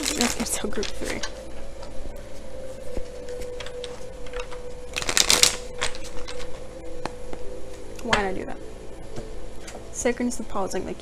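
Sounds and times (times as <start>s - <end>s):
cards being shuffled: 2.9s - 6.6s.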